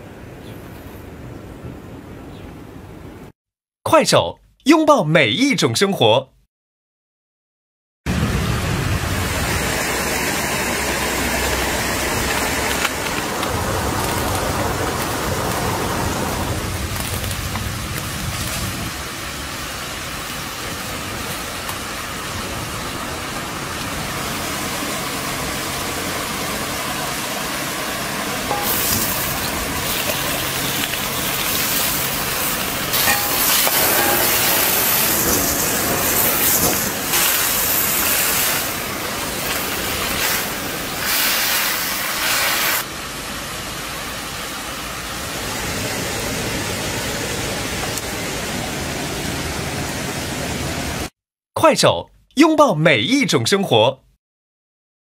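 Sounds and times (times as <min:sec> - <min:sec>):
wood fire crackling: 0:11.4 - 0:23.9, 0:27.9 - 0:42.8
food sizzling: 0:27.9 - 0:42.8.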